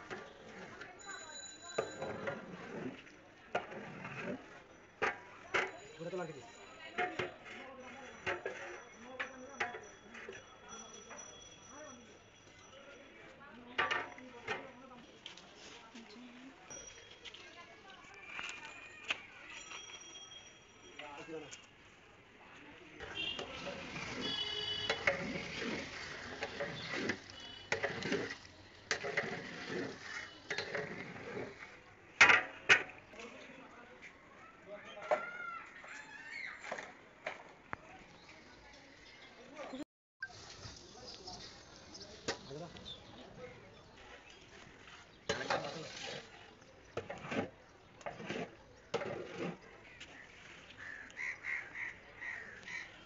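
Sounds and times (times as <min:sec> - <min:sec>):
ladle scraping metal pot: 0:01.8 - 0:06.1, 0:06.9 - 0:10.4, 0:23.0 - 0:32.9, 0:45.2 - 0:49.8
ladle stirring wet rice: 0:23.0 - 0:32.9, 0:44.0 - 0:51.0.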